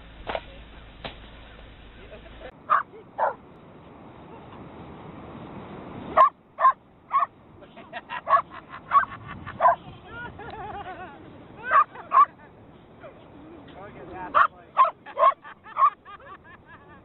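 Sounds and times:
dog barking in sharp yips: 0:02.7 - 0:03.4, 0:06.2 - 0:07.3.

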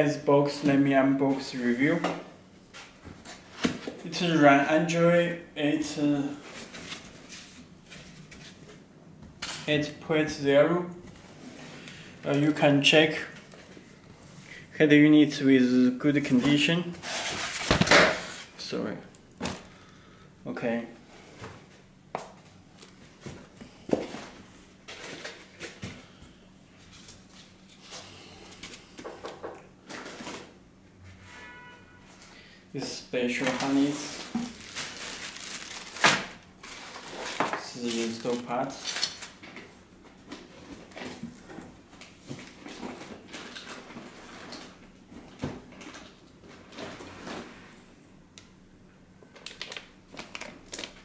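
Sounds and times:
packaging rustling: 0:33.4 - 0:39.5, 0:49.3 - 0:51.0.

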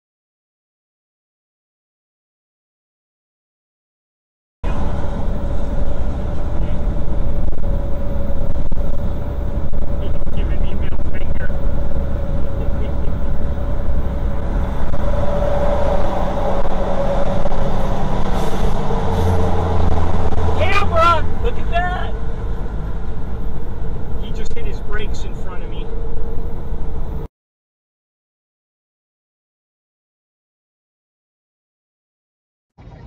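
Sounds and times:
steady hum: 0:04.6 - 0:27.3
steady whine: 0:04.6 - 0:27.3
truck engine drone: 0:04.6 - 0:27.3, 0:32.8 - 0:33.0.

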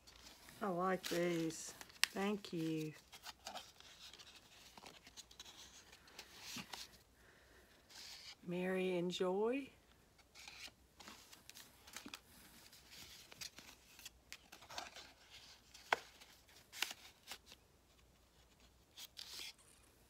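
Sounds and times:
paper rustling and sliding: 0:00.0 - 0:07.0.

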